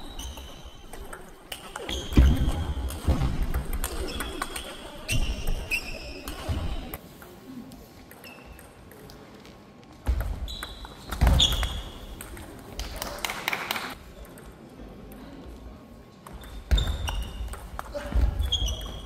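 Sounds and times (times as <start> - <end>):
shoes squeaking: 0.0 - 3.1, 3.9 - 6.9, 16.3 - 19.0.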